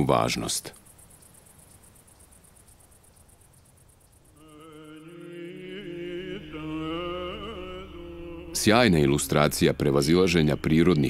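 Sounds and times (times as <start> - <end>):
slow low chant music: 4.4 - 11.0.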